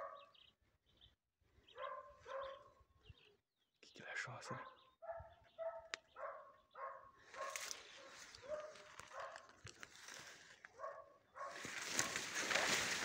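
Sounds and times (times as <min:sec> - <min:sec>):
distant dog barking: 0:00.0 - 0:00.4, 0:01.7 - 0:02.8, 0:04.5 - 0:09.6, 0:10.7 - 0:13.0.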